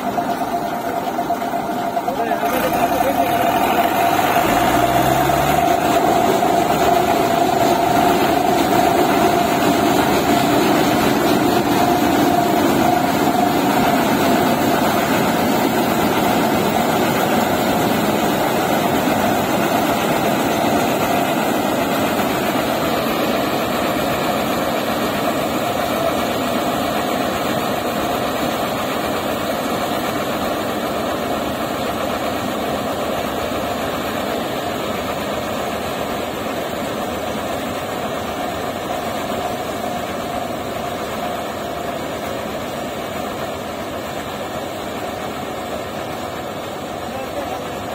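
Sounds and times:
combine harvester machinery din: 0.0 - 30.1.

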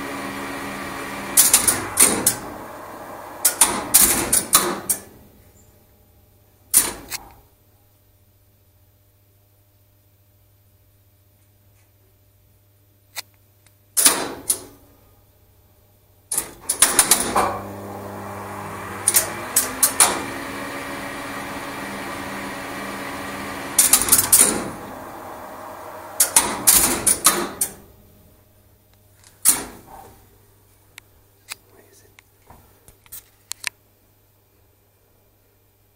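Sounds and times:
lift machinery humming: 0.0 - 5.4, 16.3 - 28.5
relays clicking: 1.4 - 2.8, 3.4 - 5.1, 18.9 - 20.4, 23.7 - 25.2, 26.1 - 27.8.

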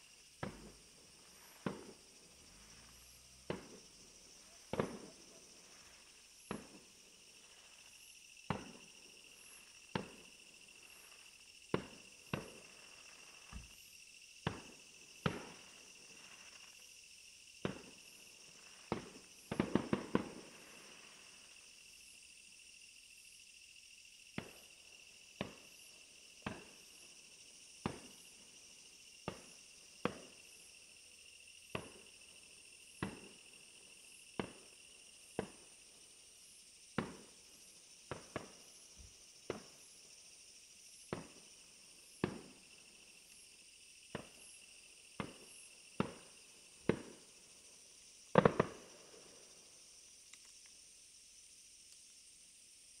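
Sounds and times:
insect chirring: 0.0 - 53.0
fireworks bursting: 0.4 - 13.8, 14.4 - 16.8, 17.6 - 21.5, 33.0 - 33.4, 42.2 - 42.6, 45.2 - 47.2, 48.3 - 49.3.

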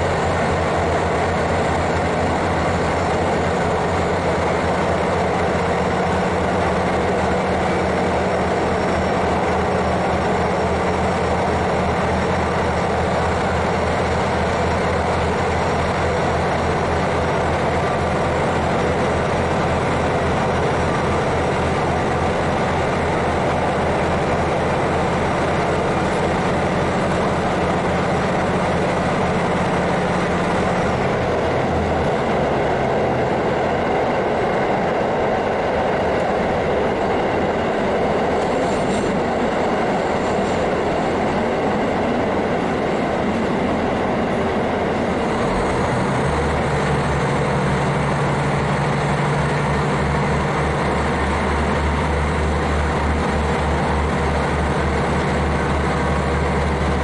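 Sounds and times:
diesel engine droning: 0.0 - 57.0
train wheels rumbling on rails: 0.0 - 57.0.

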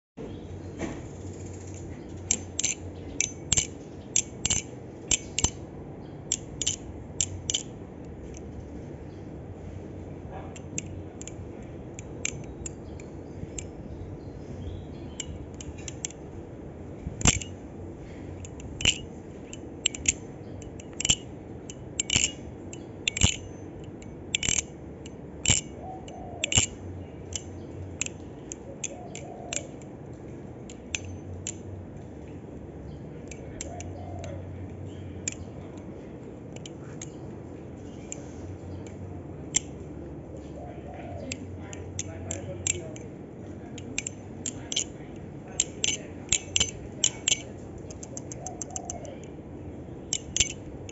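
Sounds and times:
low background noise: 0.2 - 50.9
butterfly knife metallic clicks: 1.6 - 5.6, 6.3 - 8.5, 10.5 - 13.8, 17.2 - 17.6, 18.4 - 29.9, 30.6 - 31.8, 32.9 - 35.9, 36.5 - 37.3, 37.9 - 39.8, 41.2 - 49.4, 50.0 - 50.9.

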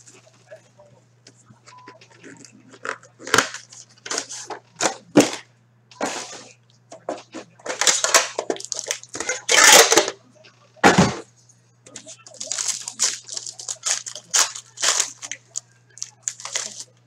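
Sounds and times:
cardboard and plastic crinkling: 7.7 - 9.2, 12.3 - 17.0.

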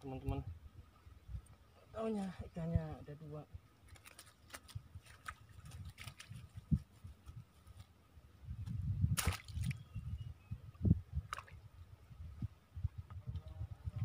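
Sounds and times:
water splashing: 3.8 - 6.6, 9.2 - 9.8, 11.2 - 11.6.

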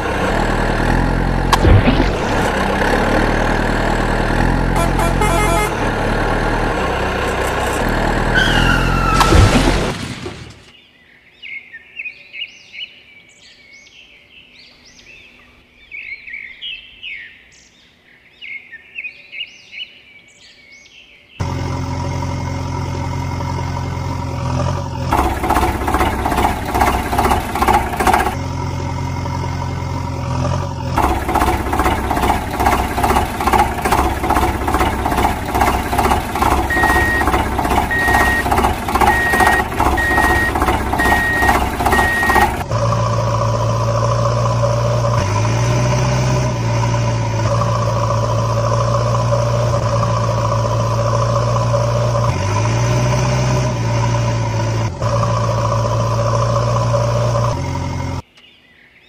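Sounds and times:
chugging engine: 0.0 - 9.9, 21.4 - 45.4
engine idling and revving: 0.0 - 10.7, 21.4 - 58.3
reversing beeps: 36.6 - 42.6.

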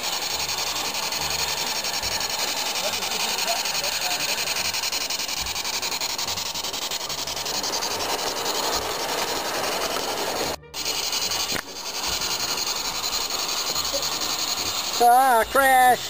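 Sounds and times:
model train wheels rumbling on rails: 0.0 - 16.0.

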